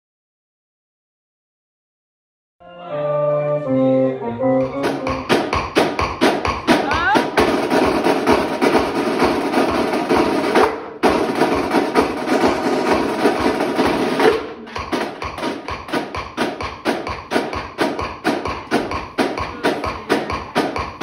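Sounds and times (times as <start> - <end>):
marching snare and bass drums: 4.7 - 21.0.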